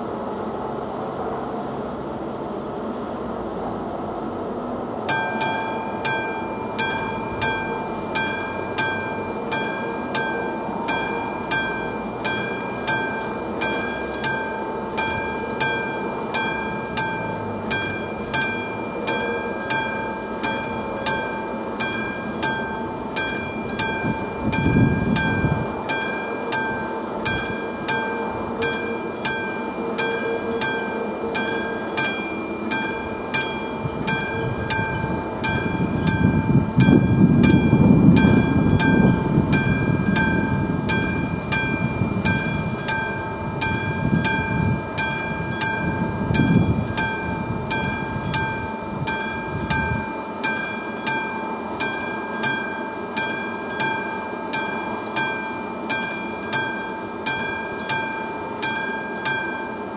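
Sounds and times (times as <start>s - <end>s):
mechanical warning bell striking: 5.1s - 59.9s.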